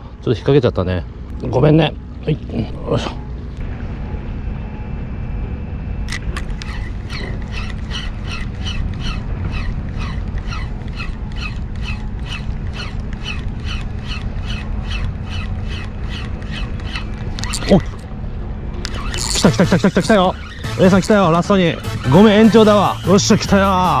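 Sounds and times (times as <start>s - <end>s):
steady low rumble: 0.0s - 24.0s
fishing reel clicking: 6.6s - 18.0s.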